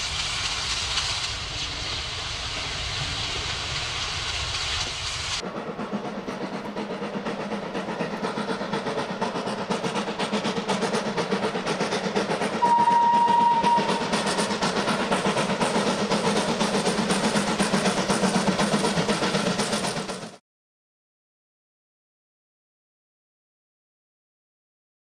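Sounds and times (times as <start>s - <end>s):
steam locomotive exhaust chuffing: 0.0s - 20.4s
steam whistle blast: 12.6s - 14.3s.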